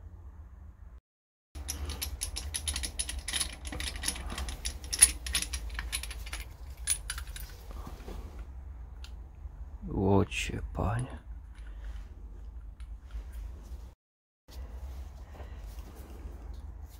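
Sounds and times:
metallic clinking of hand tools: 1.6s - 7.6s.

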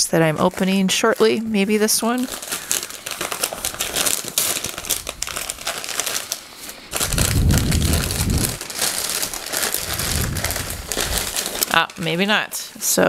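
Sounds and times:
paper crumpling and rustling: 0.3s - 12.2s
low rumble: 7.0s - 11.6s.

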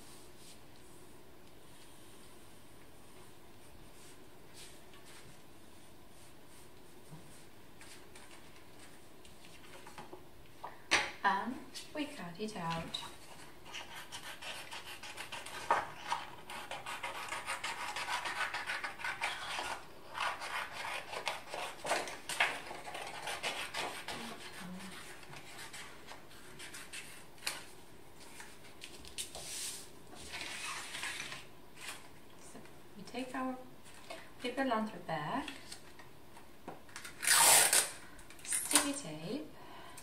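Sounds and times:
scissors cutting paper: 13.7s - 25.8s.

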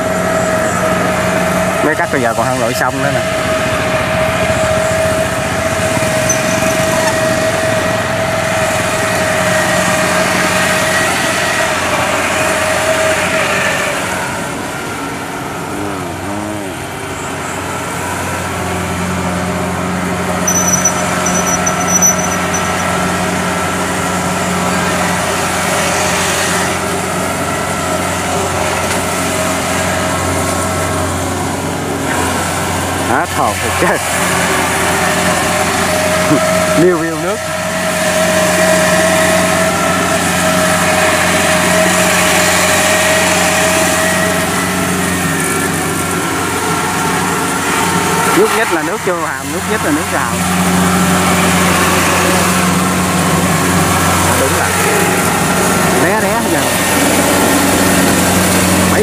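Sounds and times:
diesel engine running: 0.0s - 59.0s
steady high whine: 20.3s - 23.5s.

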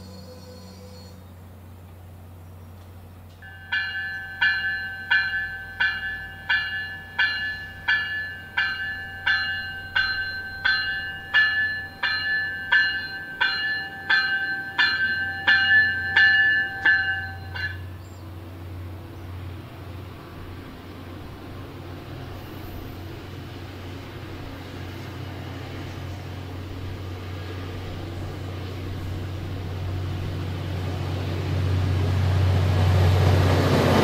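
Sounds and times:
low train rumble: 0.0s - 34.0s
train warning bell ringing: 3.4s - 18.4s.

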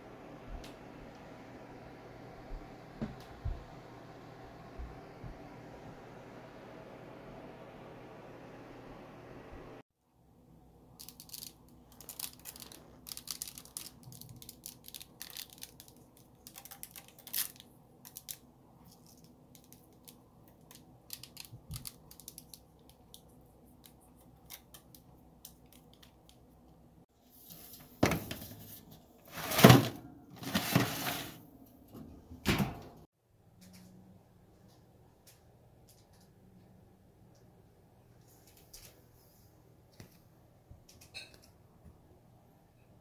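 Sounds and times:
paper or foil rustling: 11.0s - 22.6s.

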